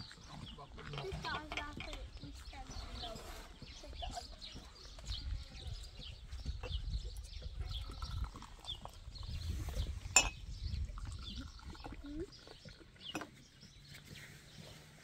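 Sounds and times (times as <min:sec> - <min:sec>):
wind rumbling on microphone: 0:01.0 - 0:13.8
tea pouring into glass cups: 0:06.6 - 0:13.8
glassware clink: 0:10.1 - 0:10.5.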